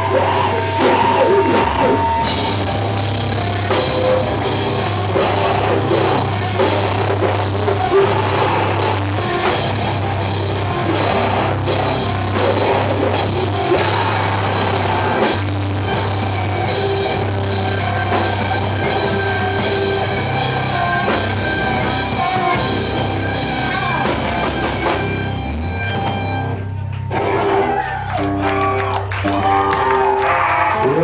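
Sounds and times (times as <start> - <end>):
bass guitar: 0.0 - 31.0
distorted electric guitars: 0.0 - 31.0
pounding drums: 0.7 - 25.3.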